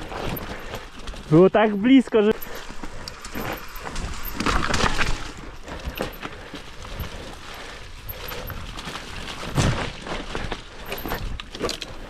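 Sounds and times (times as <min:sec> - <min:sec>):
bike tyre noise on dirt: 0:00.0 - 0:12.0
bike knocks and clatters: 0:09.2 - 0:12.0.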